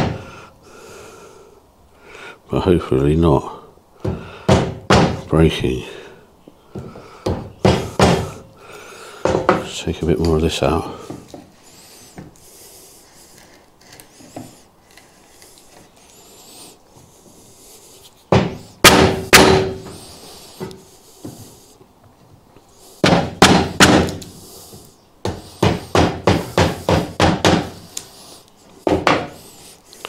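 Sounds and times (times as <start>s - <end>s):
mallet striking a wood chisel: 4.0s - 5.2s, 18.3s - 19.9s, 23.0s - 24.2s, 25.2s - 27.8s.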